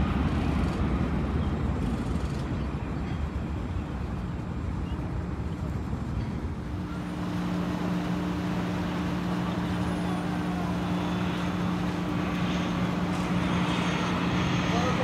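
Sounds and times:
aircraft engines rumbling: 0:00.0 - 0:15.0
steady low hum: 0:05.6 - 0:15.0.

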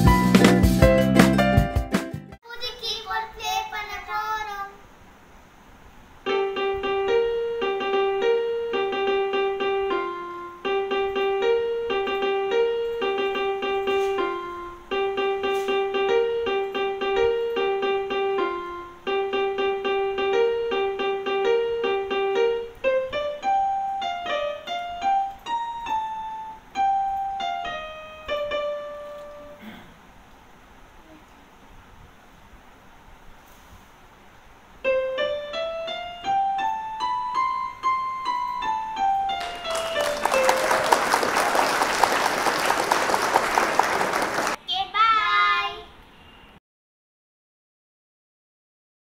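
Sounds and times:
keyboard melody: 0:00.0 - 0:02.4, 0:06.3 - 0:29.6, 0:34.8 - 0:44.6.

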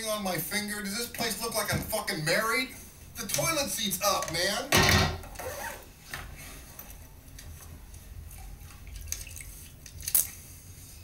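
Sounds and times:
toilet water splashing and bubbling: 0:08.2 - 0:10.5.

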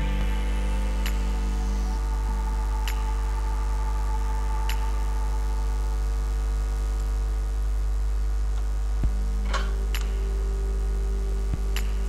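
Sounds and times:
electrical mains hum: 0:00.0 - 0:12.0
steady tone: 0:00.0 - 0:12.0.

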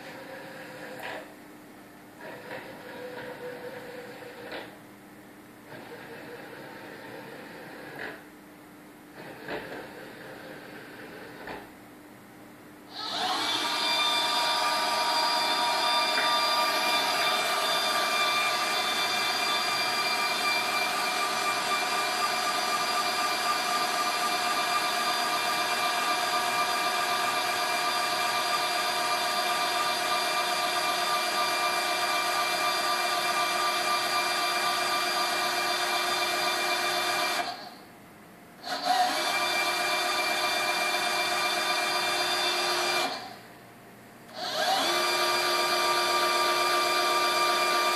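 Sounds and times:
machine drive motors whining: 0:02.2 - 0:04.8, 0:12.9 - 0:37.9, 0:38.6 - 0:43.4, 0:44.3 - 0:47.9.

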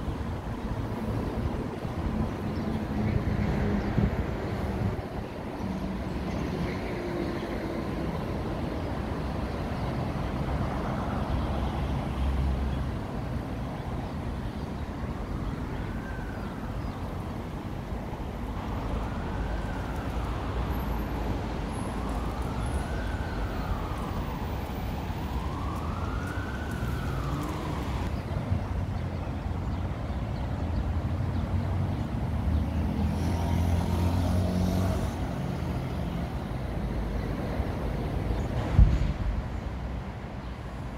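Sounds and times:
street traffic: 0:00.0 - 0:40.9
emergency siren wailing: 0:15.5 - 0:17.4, 0:18.3 - 0:28.2
car passing: 0:31.5 - 0:39.5.

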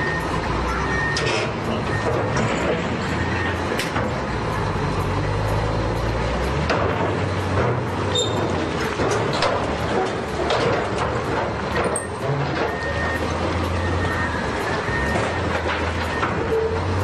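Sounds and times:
faint reversing beeper: 0:00.0 - 0:02.2, 0:12.0 - 0:16.8
heavy diesel engines under load: 0:00.0 - 0:17.0
metal knocks and clanks: 0:01.0 - 0:17.0.

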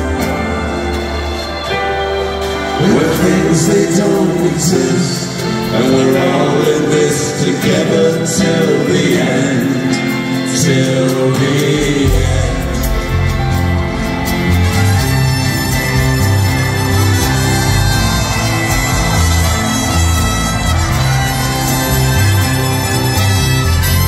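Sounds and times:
backing choir singing: 0:00.0 - 0:23.1
piano chords: 0:00.0 - 0:24.0
man singing: 0:02.6 - 0:24.0
deep bass: 0:11.7 - 0:24.0.

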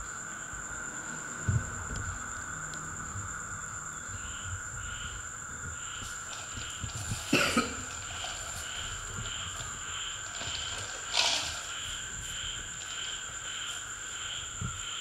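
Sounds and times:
insect trilling: 0:00.1 - 0:15.0
person coughing: 0:07.3 - 0:07.9.

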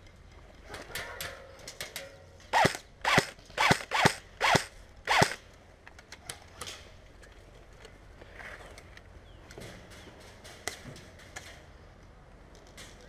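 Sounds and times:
airsoft rifle shots: 0:02.5 - 0:05.4
mechanical whir: 0:02.6 - 0:05.4.

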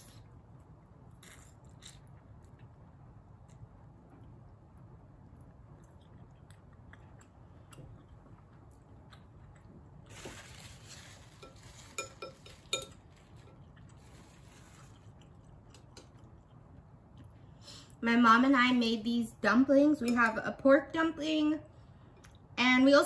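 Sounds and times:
quiet eating sounds: 0:00.0 - 0:18.0, 0:21.7 - 0:22.6
chopsticks clinking against bowl: 0:11.4 - 0:13.5.

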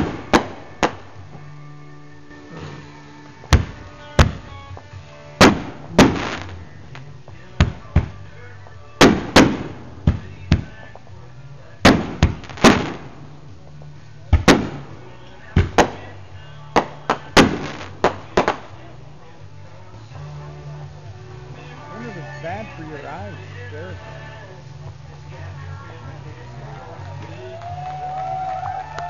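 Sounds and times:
fireworks bangs with echo: 0:00.0 - 0:01.2, 0:03.4 - 0:08.4, 0:09.0 - 0:11.0, 0:11.8 - 0:13.4, 0:14.3 - 0:18.8.

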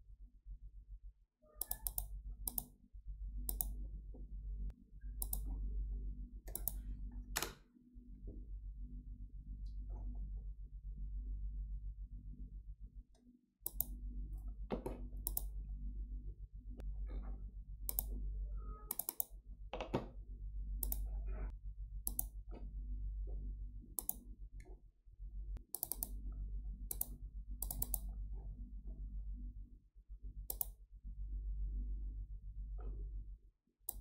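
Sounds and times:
low electrical hum: 0:00.2 - 0:34.0
computer mouse button clicking: 0:01.6 - 0:02.7, 0:03.5 - 0:03.8, 0:05.2 - 0:05.4, 0:06.5 - 0:06.8, 0:13.6 - 0:14.0, 0:15.2 - 0:15.5, 0:17.9 - 0:18.1, 0:18.9 - 0:19.3, 0:20.8 - 0:21.0, 0:22.0 - 0:22.3, 0:24.0 - 0:24.2, 0:25.7 - 0:26.2, 0:26.9 - 0:28.0, 0:30.5 - 0:30.8.

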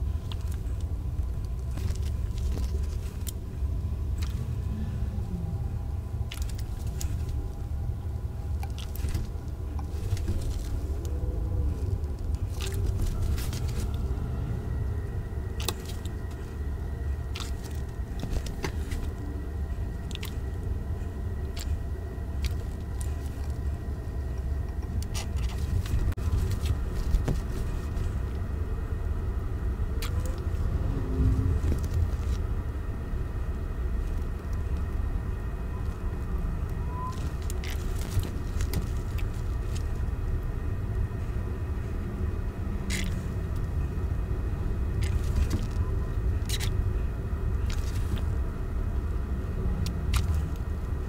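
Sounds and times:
steady low rumble: 0:00.0 - 0:51.0
handling clicks and crackles: 0:00.2 - 0:03.4, 0:06.2 - 0:07.7, 0:08.5 - 0:14.1, 0:15.4 - 0:28.4, 0:35.8 - 0:40.5, 0:44.9 - 0:46.8, 0:47.5 - 0:48.4, 0:49.8 - 0:51.0.

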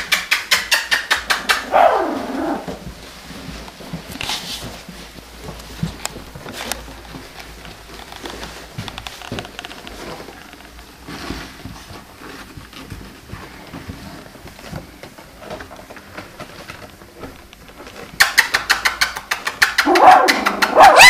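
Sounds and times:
puppies shuffling on blanket: 0:01.7 - 0:18.2
fast sharp clicks: 0:18.2 - 0:20.8
puppy whining and yelping: 0:19.8 - 0:21.0.

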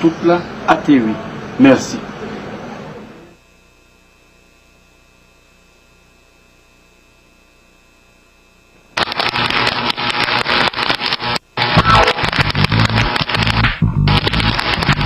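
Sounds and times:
electrical mains hum: 0:00.0 - 0:15.0
high whine: 0:05.3 - 0:15.0
crackly music with dense beat: 0:11.7 - 0:15.0.

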